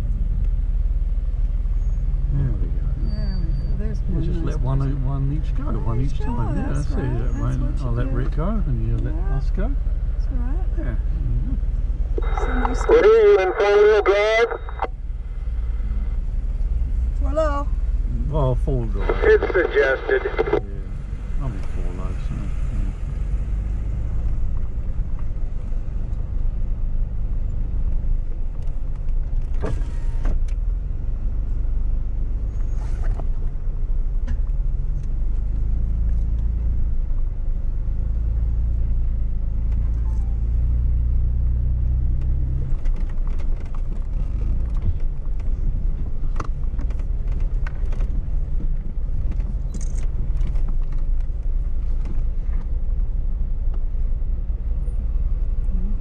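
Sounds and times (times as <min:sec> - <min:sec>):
engine low rumble: 0:00.0 - 0:56.0.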